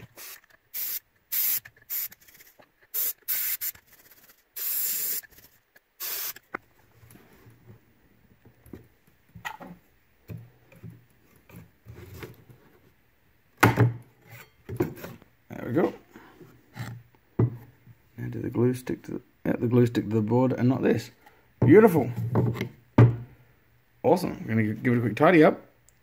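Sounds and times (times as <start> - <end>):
compressed air hissing blasts: 0.0 - 6.5.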